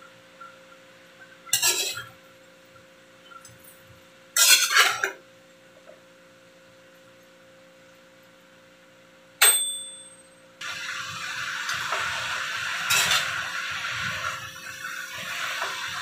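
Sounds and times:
spatula scraping cabbage in pan: 1.6s - 2.1s.

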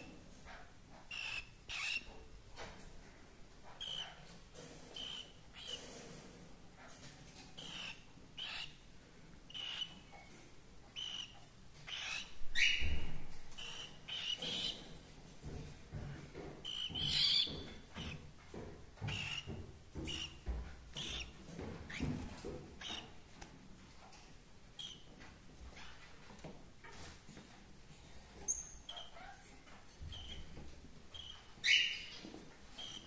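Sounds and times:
cockatiels chirping: 0.0s - 2.2s, 3.6s - 5.9s, 7.6s - 8.8s, 9.5s - 10.3s, 10.9s - 14.9s, 16.6s - 18.2s, 19.0s - 23.2s, 24.8s - 25.1s, 28.5s - 29.5s, 30.1s - 30.5s, 31.1s - 33.0s.

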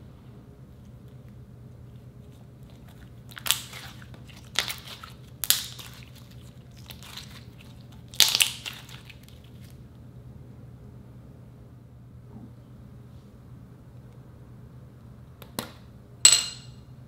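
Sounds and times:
slime squelching and popping: 2.7s - 9.8s.

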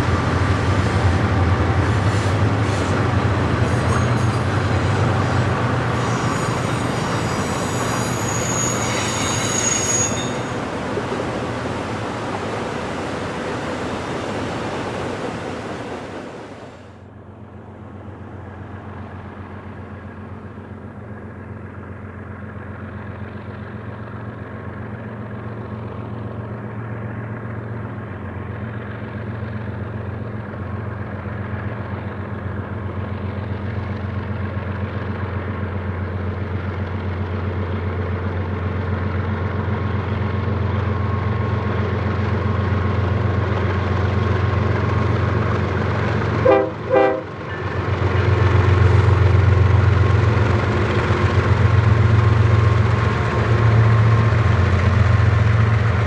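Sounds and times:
diesel locomotive engines droning: 0.0s - 56.0s
freight train passing: 0.0s - 56.0s.

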